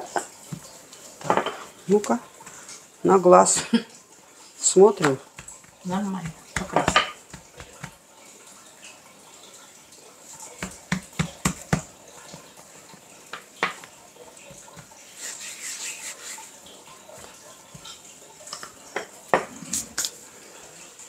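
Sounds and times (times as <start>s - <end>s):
kitchen taps and knocks: 0.0s - 1.7s, 5.0s - 8.0s, 10.6s - 11.9s, 13.4s - 13.9s.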